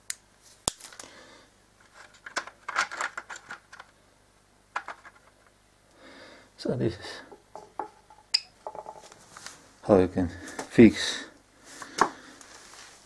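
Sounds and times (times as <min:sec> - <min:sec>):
scraping and rattling of cables: 0:01.8 - 0:03.9.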